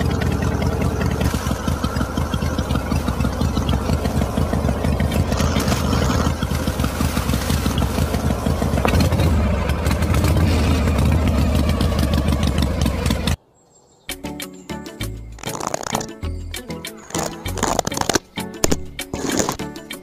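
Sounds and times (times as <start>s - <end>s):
small motor humming: 0.0s - 13.4s
rice grains rattling: 1.2s - 9.3s, 15.4s - 16.2s, 16.9s - 19.7s.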